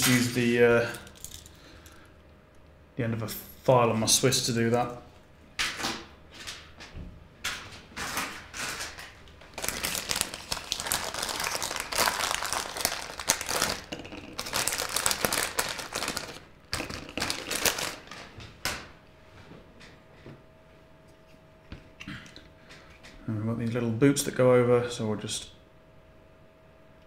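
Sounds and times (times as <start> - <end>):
plastic bag crinkling: 8.0 - 18.3.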